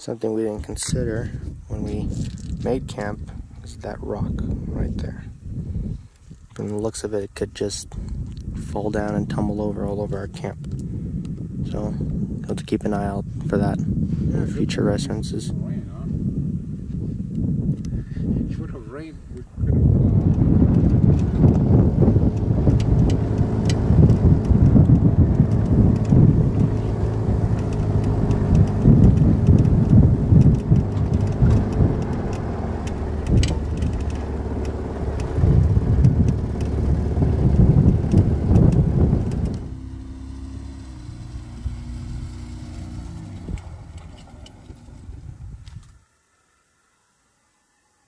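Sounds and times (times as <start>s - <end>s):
road and wind rumble: 0.0s - 46.2s
steady truck engine hum: 19.4s - 45.6s
loud vehicle engine: 19.8s - 45.4s
knocks and rattles: 22.3s - 39.6s.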